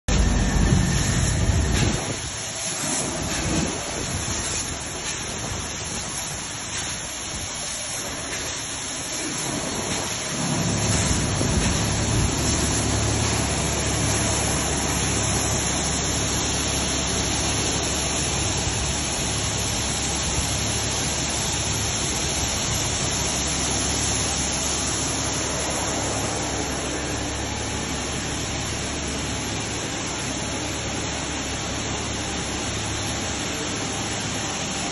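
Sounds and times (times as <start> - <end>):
low hum: 0.1 - 6.0
belt conveyor rumble and hiss: 0.1 - 34.9.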